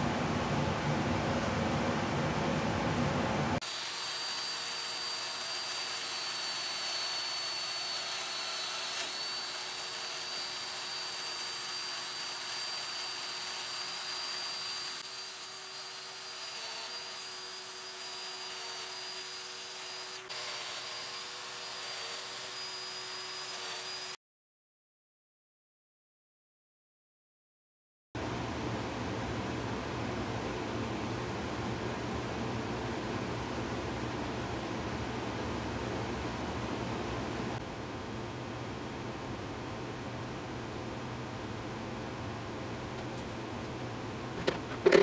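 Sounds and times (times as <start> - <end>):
power joiner whining: 3.6 - 24.2.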